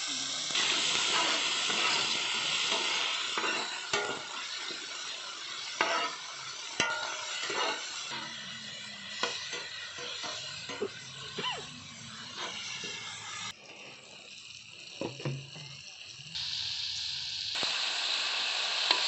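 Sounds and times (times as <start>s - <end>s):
vegetables sizzling in hot oil: 0.0s - 19.0s
spatula scraping a pan: 0.5s - 14.2s.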